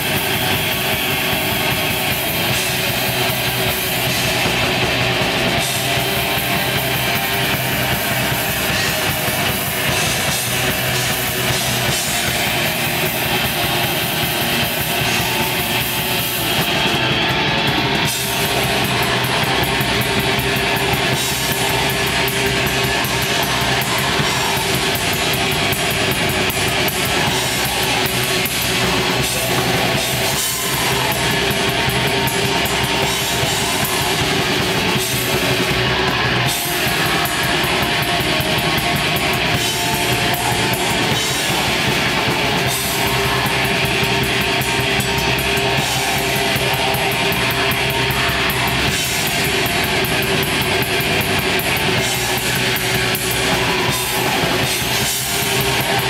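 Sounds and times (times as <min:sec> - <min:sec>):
distorted electric guitars: 0:00.0 - 0:56.0
fast dense drumming: 0:00.0 - 0:56.0.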